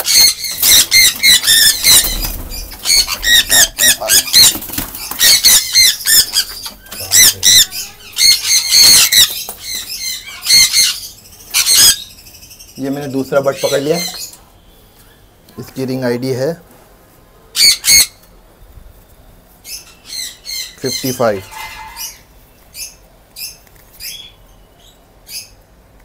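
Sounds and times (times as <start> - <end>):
parrots screeching: 0.0 - 14.3, 17.6 - 18.2, 19.7 - 24.4.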